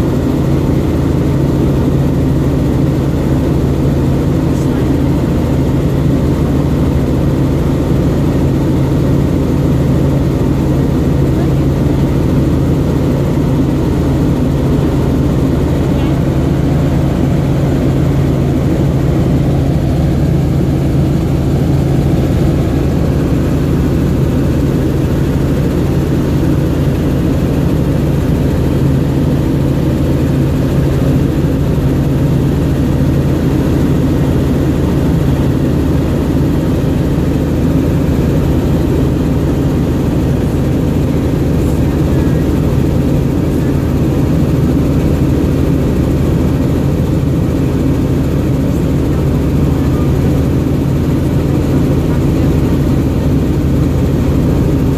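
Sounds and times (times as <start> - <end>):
helicopter rotor and engine drone: 0.0 - 54.9.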